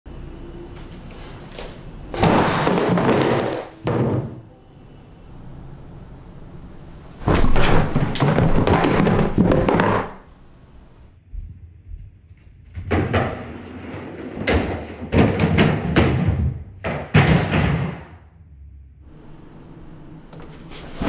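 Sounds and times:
loud crashing and clattering: 0:02.1 - 0:04.4, 0:07.2 - 0:10.2.

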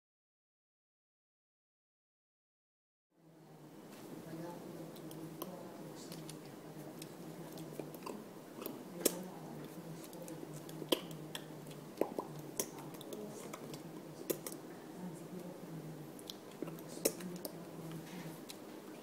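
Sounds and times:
steady low hum: 0:03.2 - 0:19.0
mouth smacks: 0:07.0 - 0:14.6, 0:16.2 - 0:17.6.

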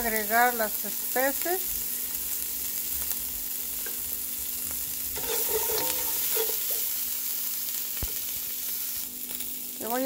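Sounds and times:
onion sizzling in oil: 0:00.0 - 0:10.0
spatula scraping a pan: 0:05.1 - 0:07.0.

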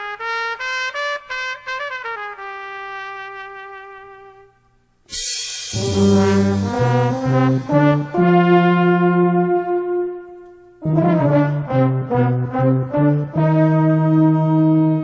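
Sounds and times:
brass band music: 0:00.0 - 0:15.0
cymbal crash: 0:05.1 - 0:08.3.

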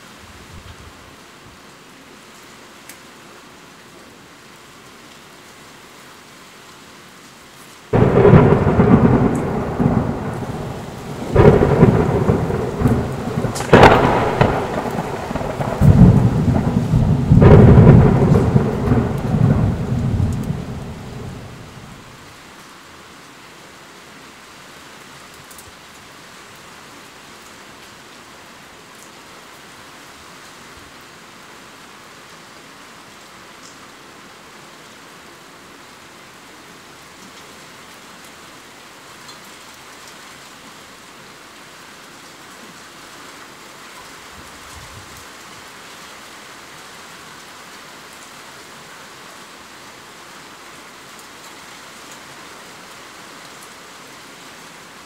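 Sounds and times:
steady rain falling: 0:00.0 - 0:55.0
thunder crashing and rumbling: 0:07.9 - 0:22.1.

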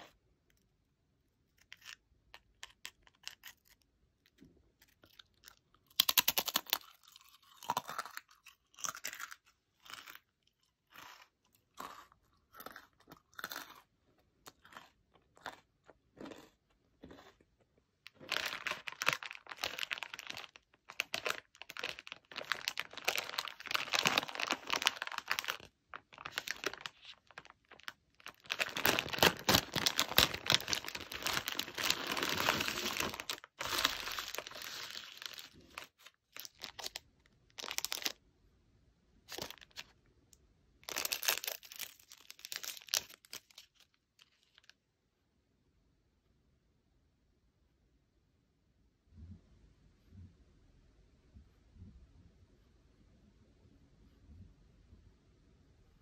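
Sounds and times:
crunchy cracker chewing: 0:01.6 - 0:37.0, 0:37.6 - 0:38.2, 0:39.3 - 0:39.9, 0:40.8 - 0:44.7
plastic snack bag crinkling: 0:04.8 - 0:13.8, 0:18.0 - 0:38.2, 0:39.3 - 0:40.0, 0:40.8 - 0:44.7.

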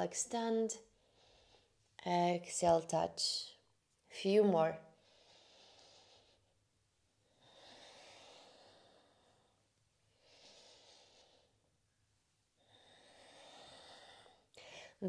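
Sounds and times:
woman breathing slowly: 0:00.8 - 0:02.0, 0:04.9 - 0:15.0.

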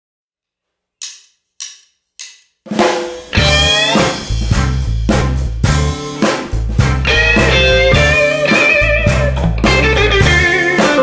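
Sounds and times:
drumstick count-in clicks: 0:01.0 - 0:02.5
blues band playing: 0:02.8 - 0:11.0.

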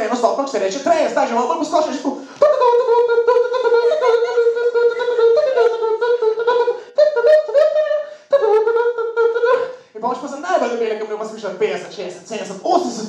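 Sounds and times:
man humming a pulsing beat: 0:02.4 - 0:09.7.

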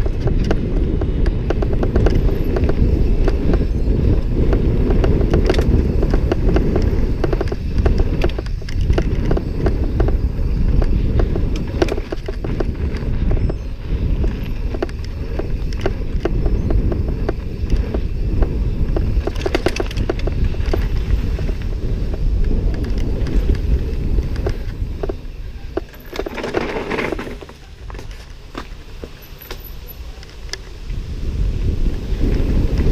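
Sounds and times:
bike clicks and rattles: 0:00.0 - 0:32.9
bike tyre noise: 0:00.0 - 0:32.9
wind rumbling on microphone: 0:00.0 - 0:32.9.

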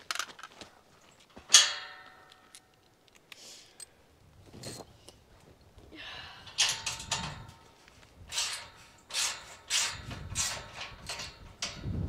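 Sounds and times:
hand tool scraping wood: 0:08.3 - 0:11.4.

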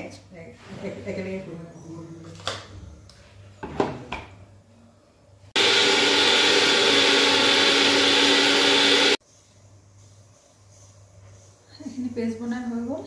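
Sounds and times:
mixer grinder whirring: 0:05.6 - 0:09.2.

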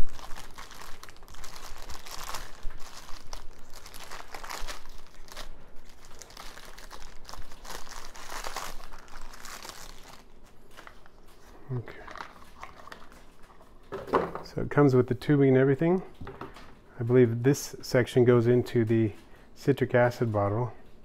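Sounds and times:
plastic bag crinkling: 0:00.0 - 0:13.9.

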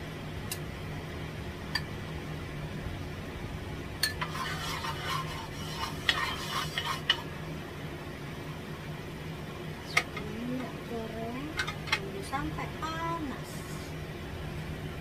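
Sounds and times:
wooden spatula scraping a wok: 0:04.2 - 0:07.3.

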